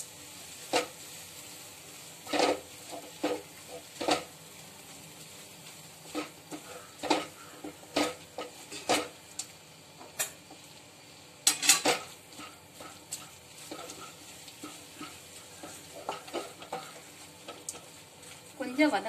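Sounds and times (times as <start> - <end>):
wooden spatula scraping a wok: 2.2 - 4.4, 5.6 - 9.2, 11.6 - 19.0.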